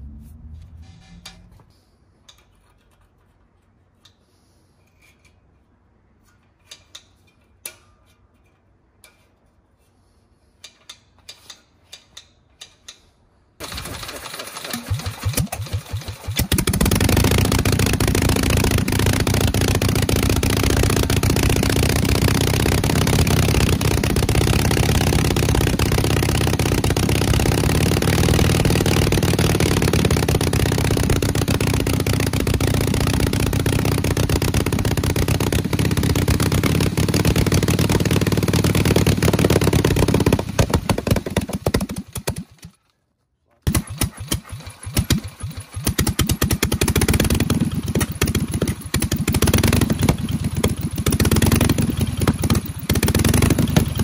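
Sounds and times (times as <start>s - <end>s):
engine cranking: 13.6s - 42.8s, 43.7s - 54.0s.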